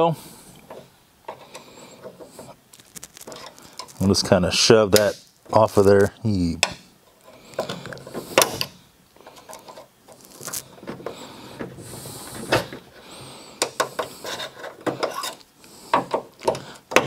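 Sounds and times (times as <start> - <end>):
clicks knocks and rubbing: 13.6 - 17.0.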